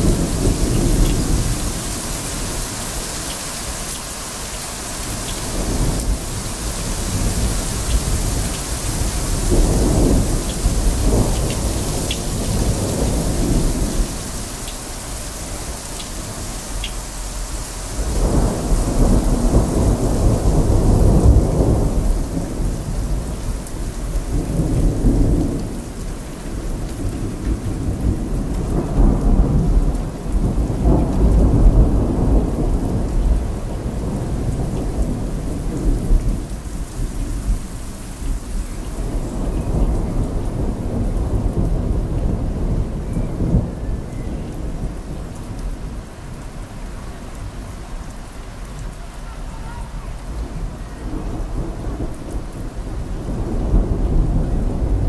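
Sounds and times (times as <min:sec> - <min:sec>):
thunder rumbling: 0:00.0 - 0:47.6, 0:48.7 - 0:55.0
steady rain: 0:00.0 - 0:55.0.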